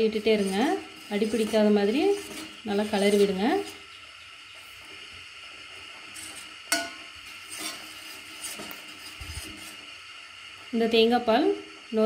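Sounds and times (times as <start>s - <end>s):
ladle stirring in saucepan: 0.0s - 10.2s
steady low hiss: 0.0s - 12.0s
ladle clinking against pan: 6.7s - 7.0s.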